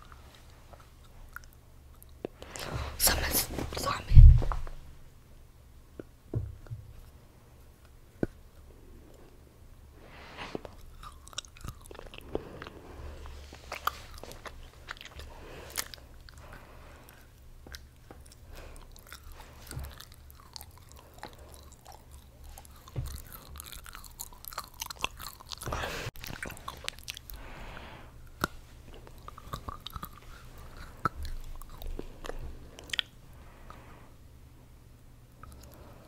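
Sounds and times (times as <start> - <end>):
chocolate being chewed: 0.0 - 2.7, 10.5 - 33.8, 35.3 - 36.0
mouth clicks and snaps: 28.2 - 33.8.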